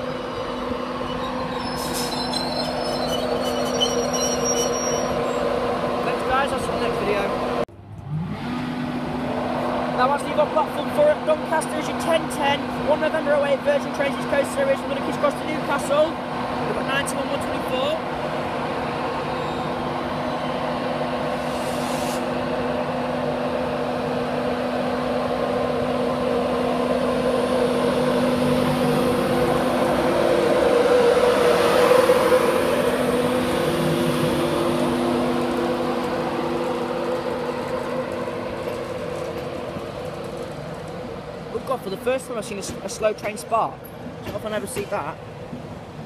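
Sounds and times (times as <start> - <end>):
electric train running hum: 0.0 - 41.7
train wheel noise: 9.5 - 46.0.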